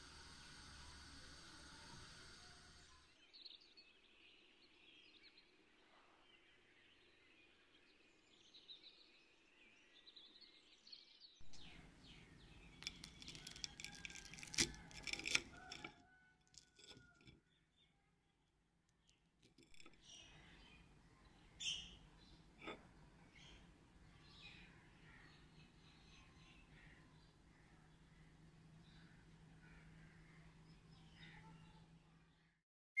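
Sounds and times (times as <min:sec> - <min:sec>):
fork crunching through breaded food: 0:12.6 - 0:17.3.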